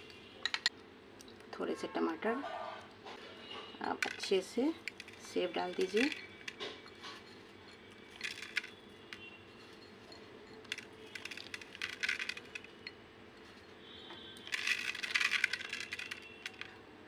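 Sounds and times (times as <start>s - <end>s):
crunchy snack strands pattering: 14.4s - 16.8s.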